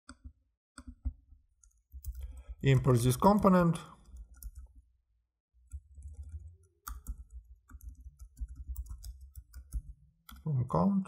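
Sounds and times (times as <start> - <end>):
keyboard keys clicking: 5.7 - 10.4.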